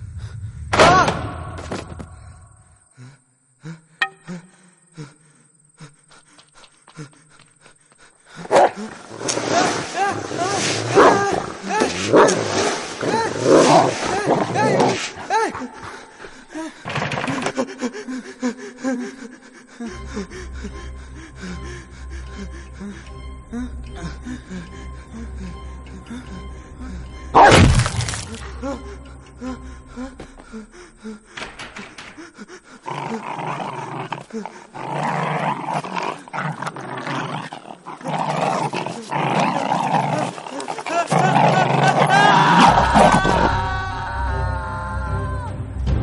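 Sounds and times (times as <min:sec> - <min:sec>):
man gasping and panting: 0:02.2 - 0:09.1, 0:15.2 - 0:27.3, 0:28.4 - 0:33.5, 0:34.1 - 0:34.8
dog growling: 0:10.8 - 0:16.3, 0:32.7 - 0:43.5
low droning music: 0:17.6 - 0:33.7, 0:41.2 - 0:46.0.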